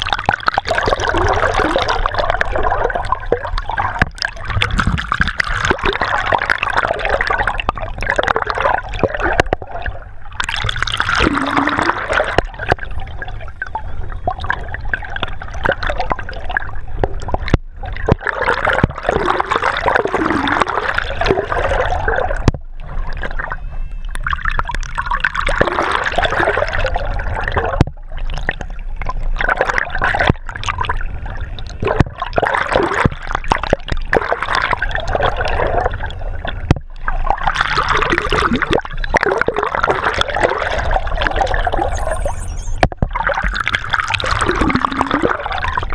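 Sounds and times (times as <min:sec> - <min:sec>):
water rushing and gurgling underwater: 0:00.0 - 0:45.9.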